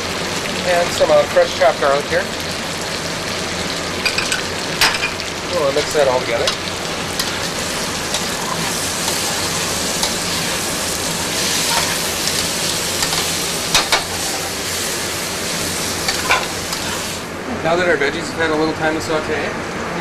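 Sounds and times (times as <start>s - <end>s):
food sizzling in a pan: 0.0s - 17.4s
tongs scraping metal pan: 5.8s - 14.5s, 16.0s - 17.0s.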